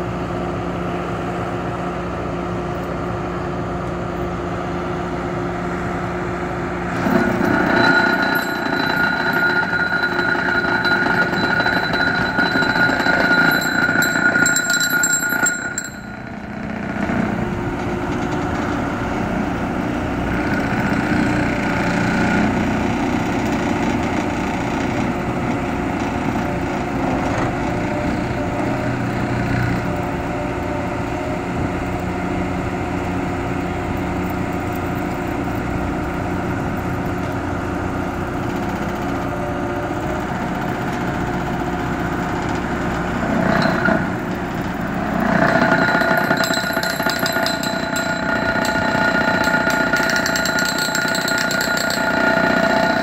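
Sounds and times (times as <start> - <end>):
excavator diesel engine running: 0.0 - 50.3
high steady whine: 6.1 - 19.2.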